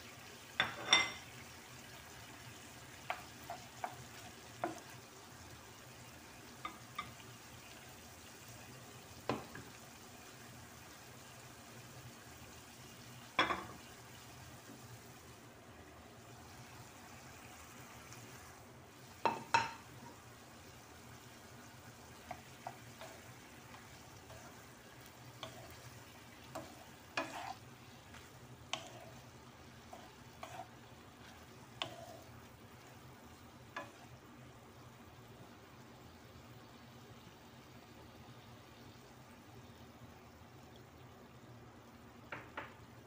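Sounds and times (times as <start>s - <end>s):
vegetables sizzling: 0.0s - 43.0s
spatula knocking and scraping pan: 3.0s - 4.9s, 19.2s - 20.2s, 22.1s - 32.2s, 33.8s - 34.1s.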